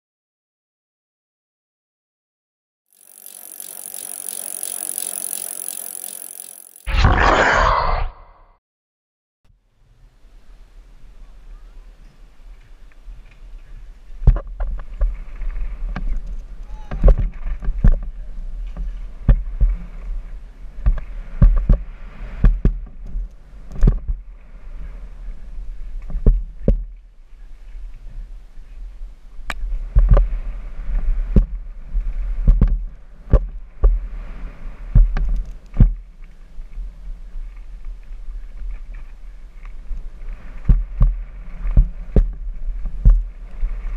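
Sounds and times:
wind rumbling on microphone: 9.9 - 43.9.

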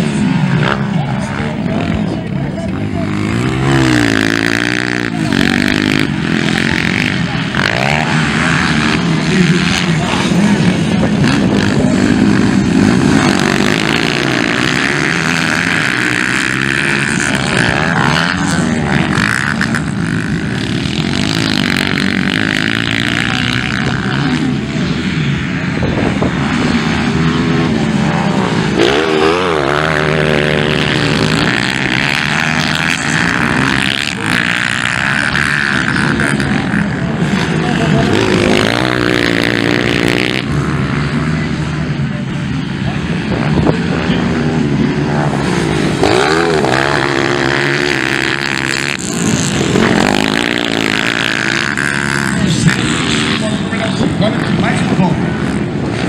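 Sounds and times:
dirt bike engines revving: 0.0 - 56.0.

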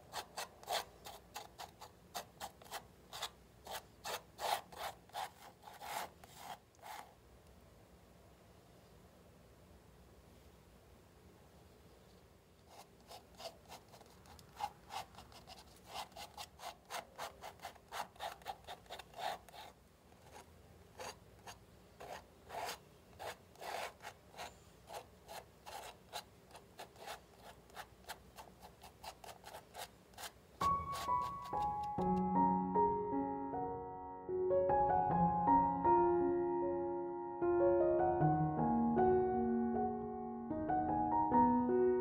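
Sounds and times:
palette knife scraping canvas: 0.0 - 7.1, 12.7 - 32.0.

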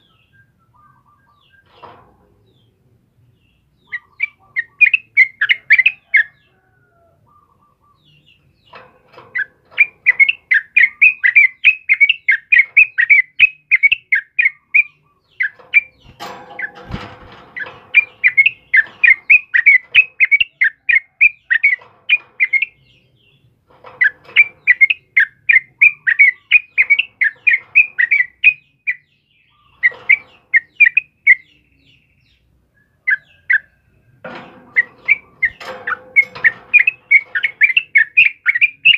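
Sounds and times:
bird singing chirpy whistled notes: 0.0 - 1.7, 9.4 - 16.8, 24.0 - 33.8, 34.8 - 38.9
rustle and thump: 1.6 - 2.7, 15.3 - 20.4, 21.7 - 24.9, 34.1 - 38.9.

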